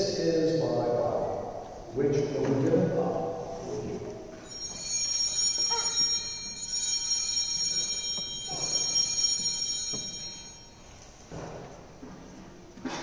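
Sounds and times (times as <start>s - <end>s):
small altar bells ringing: 4.4s - 11.5s.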